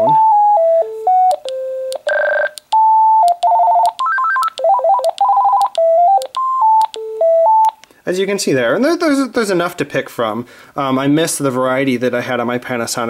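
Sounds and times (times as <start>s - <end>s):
phone ringtone beeping melodies: 0.0s - 7.8s.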